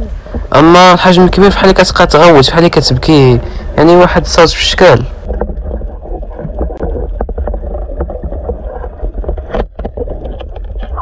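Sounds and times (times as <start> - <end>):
low underwater rumble: 5.1 - 11.0.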